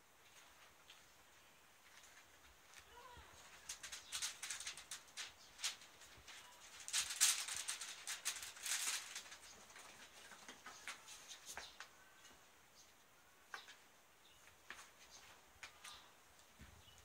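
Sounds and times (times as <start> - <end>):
paws pattering and scrabbling: 1.9 - 11.9
newspaper and quilt rustling: 3.3 - 11.8.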